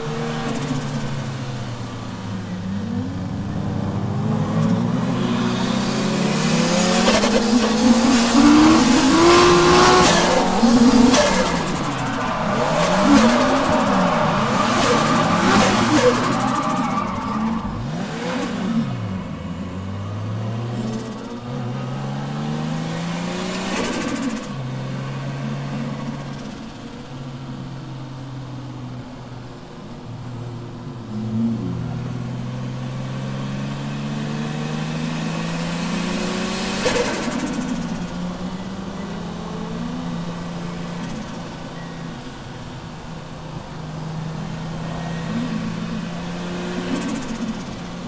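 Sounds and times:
car engine revving: 0:00.0 - 0:27.6, 0:31.0 - 0:48.0
tyre squeal: 0:07.1 - 0:18.0.

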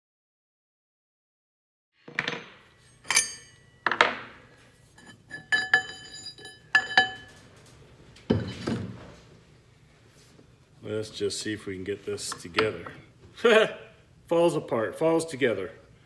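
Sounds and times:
metal parts clanking: 0:02.1 - 0:04.3.

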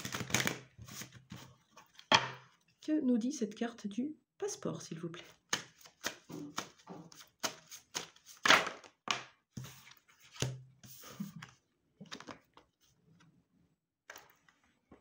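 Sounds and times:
cards being shuffled: 0:00.0 - 0:02.1, 0:05.2 - 0:09.0, 0:09.6 - 0:12.7.

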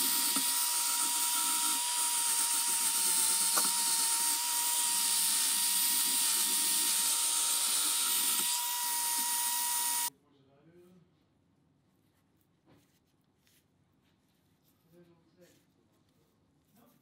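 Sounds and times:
power drill motor whine: 0:00.0 - 0:10.1.

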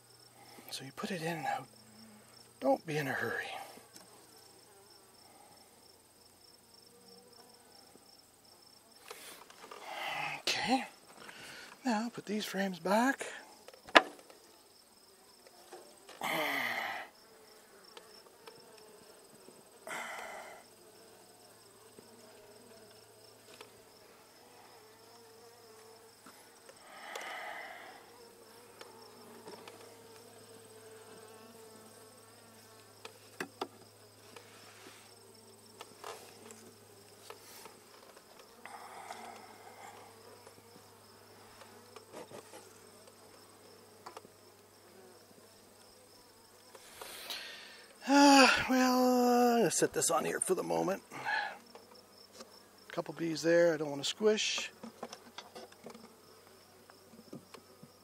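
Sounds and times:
honeybees buzzing: 0:00.0 - 0:58.0.

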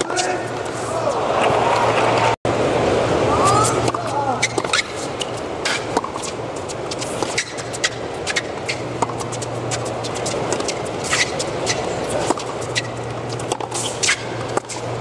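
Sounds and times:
arena crowd murmur: 0:00.4 - 0:02.4
rackets striking tennis ball: 0:03.5 - 0:15.0.

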